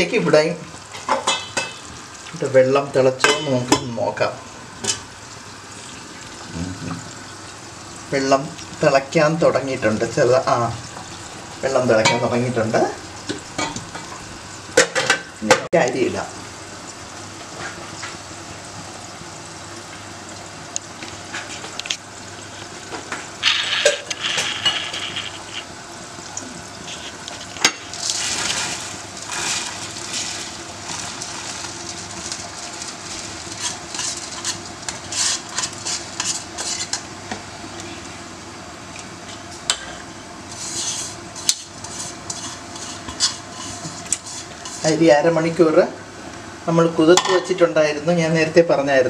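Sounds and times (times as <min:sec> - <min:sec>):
spoon stirring and scraping pot: 0:23.4 - 0:25.7, 0:26.8 - 0:30.4, 0:33.1 - 0:37.1, 0:39.3 - 0:45.0.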